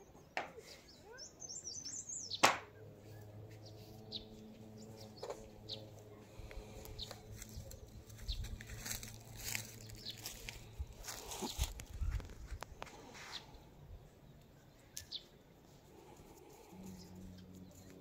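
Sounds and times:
faint bird chirps: 0:00.0 - 0:02.4.

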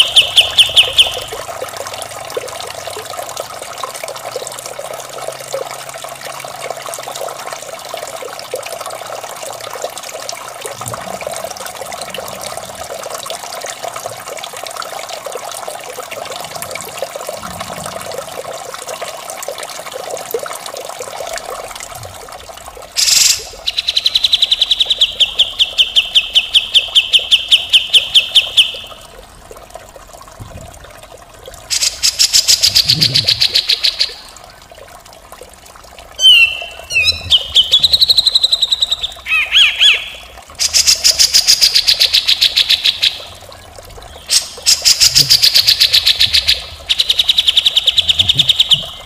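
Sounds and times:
trickling water: 0:00.0 - 0:49.0.

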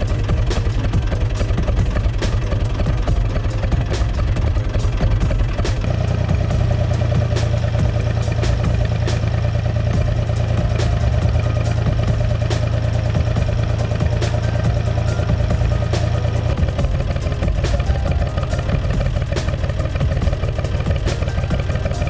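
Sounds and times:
sharp clicks and rattles: 0:00.0 - 0:22.0
tractor diesel engine running: 0:00.0 - 0:22.0.

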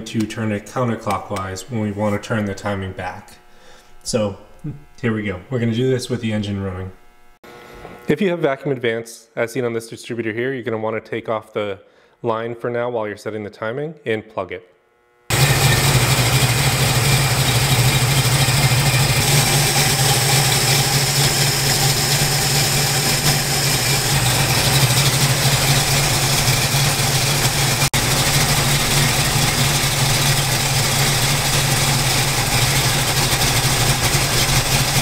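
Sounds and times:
engine idling: 0:15.3 - 0:35.0.

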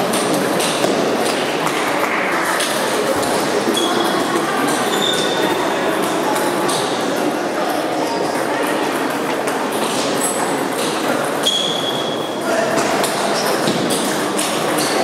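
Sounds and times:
table tennis balls clicking: 0:00.0 - 0:11.9, 0:12.8 - 0:15.0
high squeaks: 0:11.4 - 0:12.2.

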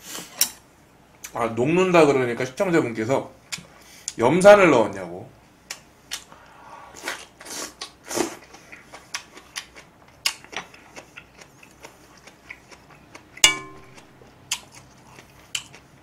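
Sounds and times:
wet chewing: 0:07.0 - 0:16.0
tableware clink: 0:13.4 - 0:14.2.

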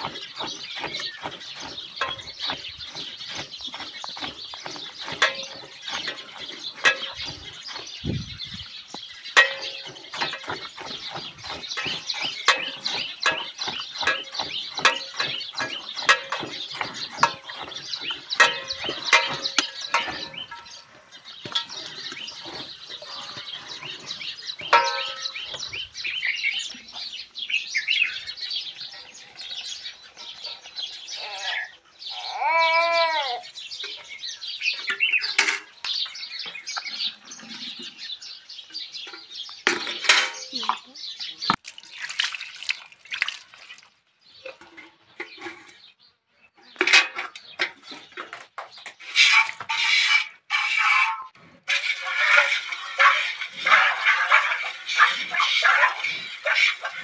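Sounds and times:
birds chirping: 0:00.0 - 0:57.0
milk squirting into bucket: 0:41.6 - 0:44.0, 0:51.7 - 0:57.0.

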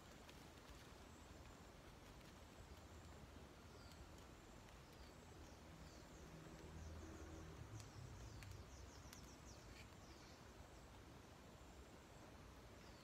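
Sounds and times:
faint ticks: 0:00.0 - 0:10.6
distant bird chirping: 0:03.4 - 0:13.0.

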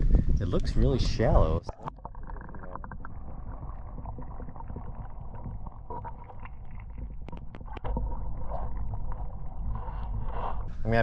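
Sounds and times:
muffled underwater water rush: 0:00.0 - 0:11.0
small clicks underwater: 0:01.6 - 0:10.7.

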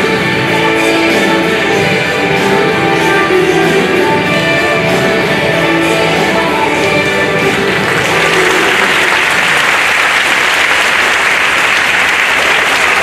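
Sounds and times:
dance music: 0:00.0 - 0:09.9
audience applauding: 0:07.4 - 0:13.0.

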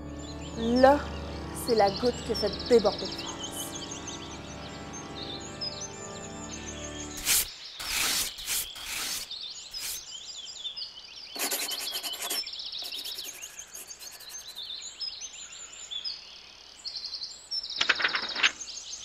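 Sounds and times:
small birds chirping: 0:00.0 - 0:19.0
raspy scratching bursts: 0:07.2 - 0:10.0, 0:11.4 - 0:14.6.

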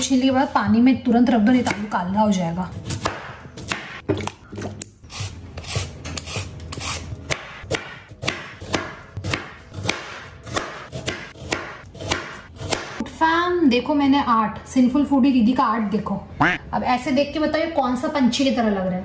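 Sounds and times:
knife chopping on wooden board: 0:05.6 - 0:13.0.

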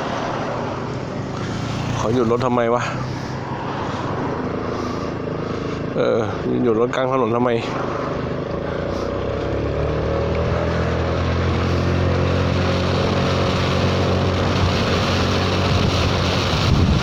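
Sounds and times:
scooter engine pulling away: 0:00.0 - 0:06.5, 0:07.6 - 0:17.0
wind rushing over microphone: 0:07.7 - 0:17.0.

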